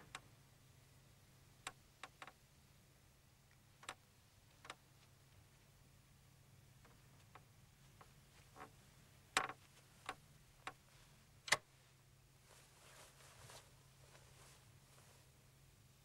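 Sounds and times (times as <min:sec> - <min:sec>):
faint low hum: 0:00.0 - 0:16.0
faint rustle: 0:06.8 - 0:15.8.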